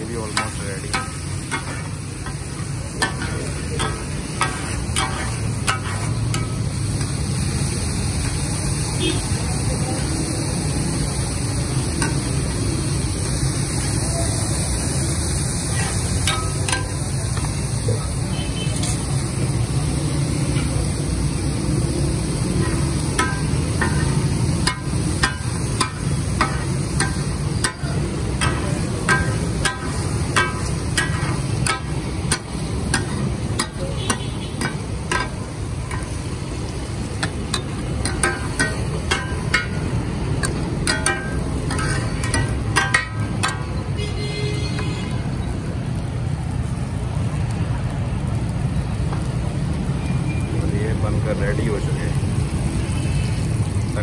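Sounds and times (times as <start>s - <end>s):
meat frying on griddle: 0.0s - 54.0s
metal spatula clacking griddle: 0.1s - 8.5s, 11.9s - 12.6s, 15.7s - 17.5s, 22.2s - 43.9s
background rumble and hiss: 19.2s - 43.9s.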